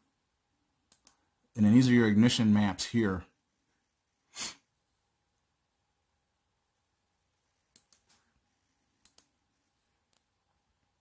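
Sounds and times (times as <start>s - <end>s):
computer mouse clicking: 0.9s - 1.2s, 7.7s - 8.3s, 9.0s - 9.4s.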